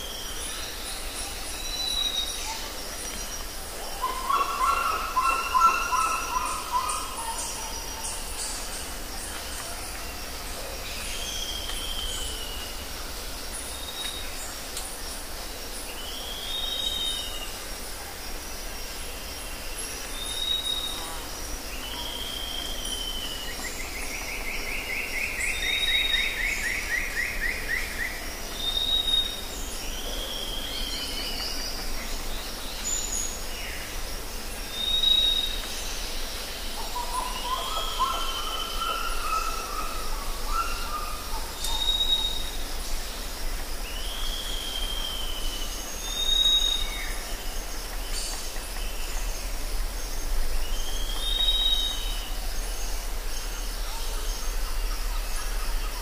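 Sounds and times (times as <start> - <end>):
steady high hiss: 0.0 - 56.0
lower warbling bird call: 3.9 - 8.6, 36.8 - 42.6
long trilled bird call: 4.0 - 8.0.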